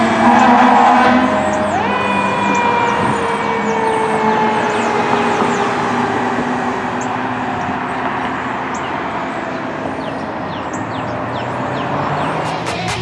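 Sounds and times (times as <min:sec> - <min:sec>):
siren-like tone: 0:00.0 - 0:08.0
street traffic: 0:00.0 - 0:13.0.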